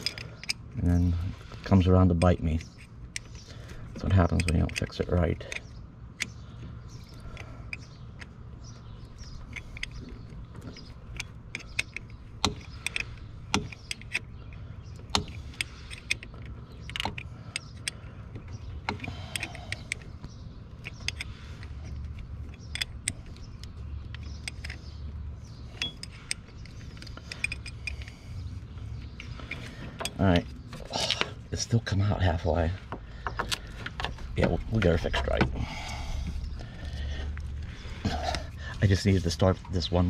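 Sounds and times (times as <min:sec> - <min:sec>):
wrench clicking on metal bolt: 0:00.0 - 0:00.7, 0:04.0 - 0:06.4, 0:09.2 - 0:28.3
steady low hum: 0:00.0 - 0:40.0.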